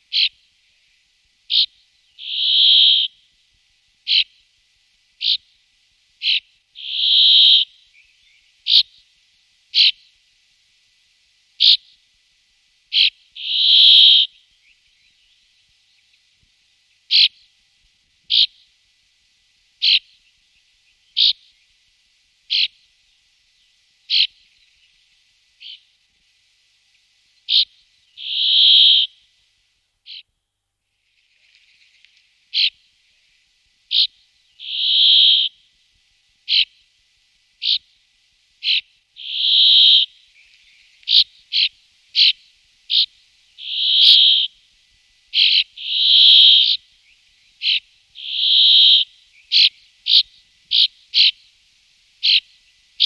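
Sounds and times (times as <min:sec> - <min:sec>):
buzzy wheezing bird song: 0:00.0 - 0:03.3, 0:04.0 - 0:04.5, 0:05.2 - 0:09.1, 0:09.7 - 0:10.2, 0:11.6 - 0:12.1, 0:12.9 - 0:17.6, 0:18.3 - 0:18.8, 0:19.8 - 0:21.9, 0:22.5 - 0:26.0, 0:27.2 - 0:29.4, 0:30.0 - 0:30.3, 0:30.9 - 0:35.8, 0:36.4 - 0:36.9, 0:37.6 - 0:38.0, 0:38.6 - 0:44.6, 0:45.3 - 0:51.6, 0:52.2 - 0:53.0
bird call notes: 0:01.5 - 0:03.2, 0:06.2 - 0:09.0, 0:12.9 - 0:15.2, 0:19.8 - 0:20.2, 0:24.1 - 0:24.4, 0:27.5 - 0:29.2, 0:33.9 - 0:35.6, 0:38.6 - 0:44.5, 0:45.4 - 0:46.8, 0:47.6 - 0:51.4, 0:52.2 - 0:52.5.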